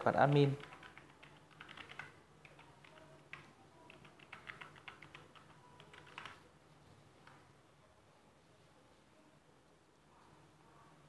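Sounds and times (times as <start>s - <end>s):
typing on keyboard: 0.3s - 6.5s.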